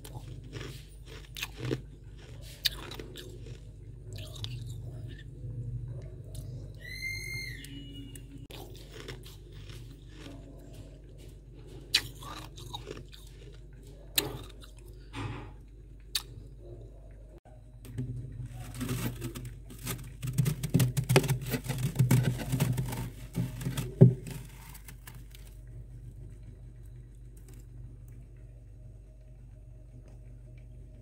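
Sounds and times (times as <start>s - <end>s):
steady low hum: 0.0s - 6.9s, 7.6s - 31.0s
hand crushing frost: 18.6s - 25.5s.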